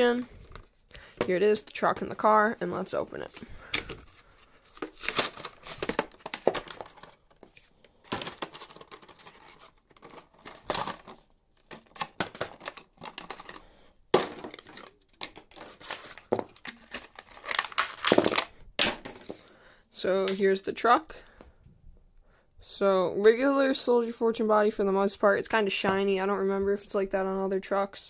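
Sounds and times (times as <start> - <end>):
cardboard tearing: 4.2 - 7.0
plastic crinkling: 14.4 - 18.6.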